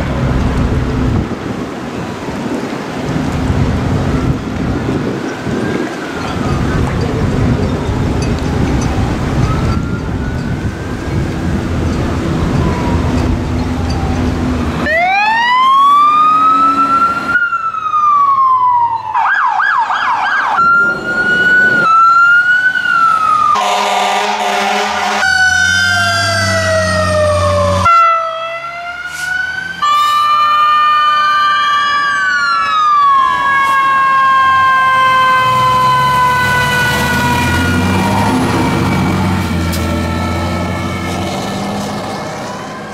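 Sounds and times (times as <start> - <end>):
fire truck sirens: 0.0 - 42.9
wind: 0.0 - 42.9
horn blast: 23.6 - 25.6.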